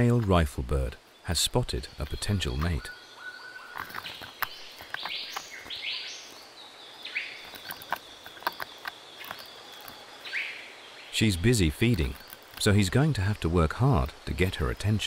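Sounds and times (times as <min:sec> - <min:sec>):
bird calls: 0:00.0 - 0:15.0
high insect tone: 0:00.0 - 0:15.0
bird tearing at tree bark: 0:03.7 - 0:05.8, 0:07.4 - 0:10.2, 0:11.7 - 0:12.8.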